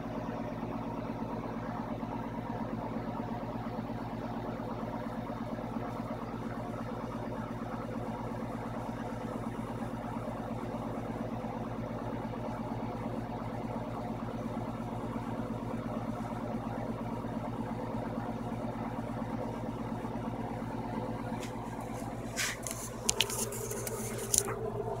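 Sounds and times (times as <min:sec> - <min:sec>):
low motor hum: 0:04.6 - 0:25.0
short clicks and rustles: 0:21.4 - 0:24.6.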